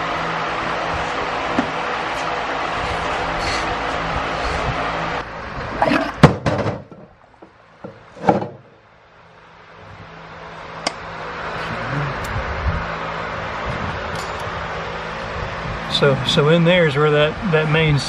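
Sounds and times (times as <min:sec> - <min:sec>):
steady shop hum: 0:00.0 - 0:18.0
heavy metal clunks and knocks: 0:05.8 - 0:08.8.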